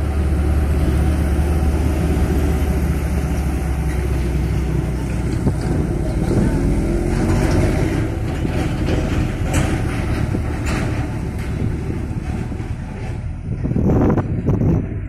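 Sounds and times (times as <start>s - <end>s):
diesel truck engine rumbling: 0.0s - 15.0s.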